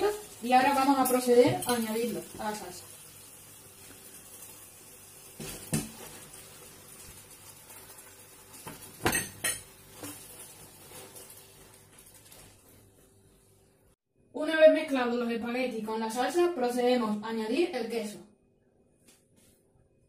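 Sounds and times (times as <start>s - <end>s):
utensils clinking against a pan: 8.6s - 10.4s.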